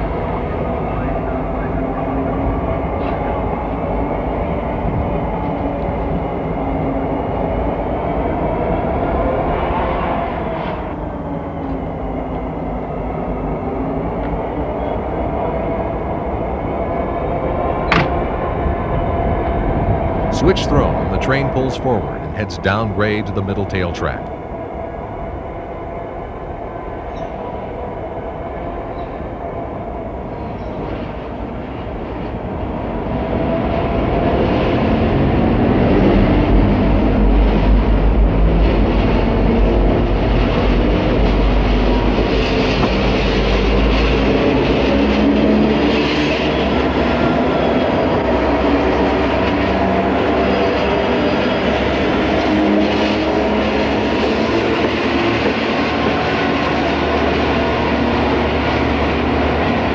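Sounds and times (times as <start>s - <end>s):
diesel locomotive engines rumbling: 0.0s - 59.9s.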